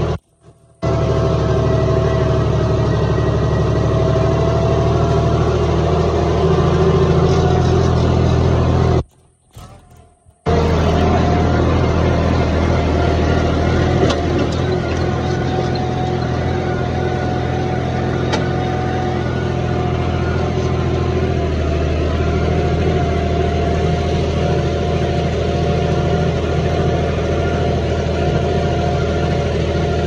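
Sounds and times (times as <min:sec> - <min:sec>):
tractor diesel engine under load: 0:00.0 - 0:30.0.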